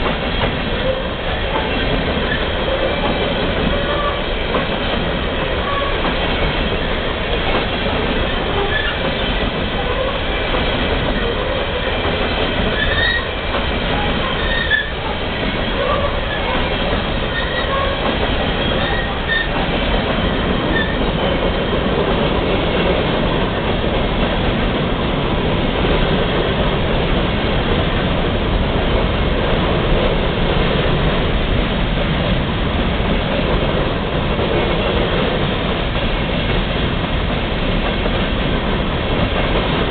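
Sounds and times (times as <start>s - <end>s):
steel wheels rolling on rails: 0.0s - 39.9s
high wheel squeals: 12.8s - 13.3s, 14.3s - 15.0s, 17.3s - 18.0s, 18.7s - 19.6s, 20.7s - 21.0s.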